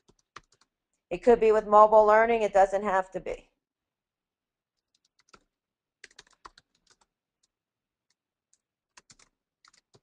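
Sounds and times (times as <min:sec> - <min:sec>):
typing on computer keyboard: 0:00.0 - 0:00.8, 0:04.8 - 0:10.0.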